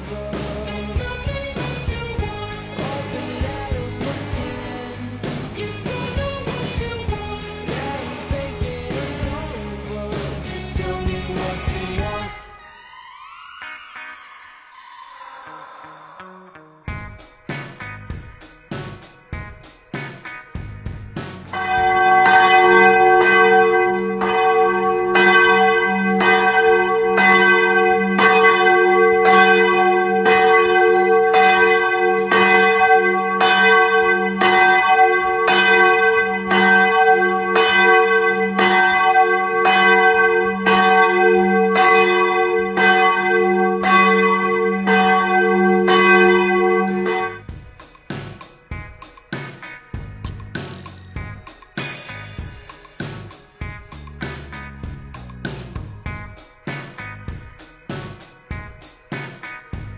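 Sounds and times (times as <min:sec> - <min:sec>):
loud steady hum: 0:00.0 - 0:12.4
large church bells ringing: 0:21.6 - 0:47.4.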